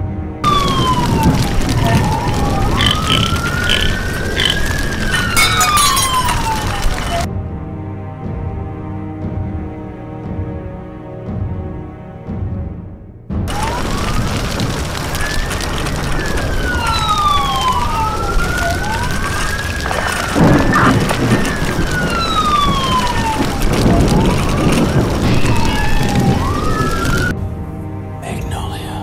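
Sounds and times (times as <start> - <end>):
city noise: 0.0 - 7.3, 13.4 - 29.0
police sirens wailing: 0.4 - 7.3, 13.5 - 27.3.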